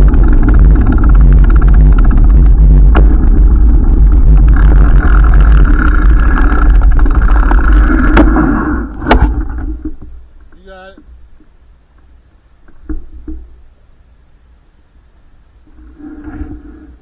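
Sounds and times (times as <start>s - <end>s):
wind rumble on microphone: 0.0s - 10.1s.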